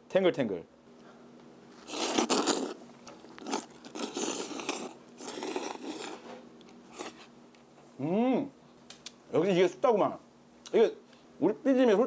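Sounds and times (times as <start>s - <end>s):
slurping noodles: 1.8s - 6.2s, 6.9s - 7.3s
chewing: 1.8s - 7.3s.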